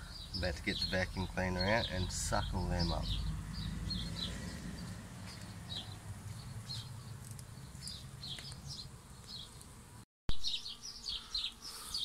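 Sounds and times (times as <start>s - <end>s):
birds chirping: 0.0s - 12.0s
honey bees buzzing: 0.0s - 12.0s.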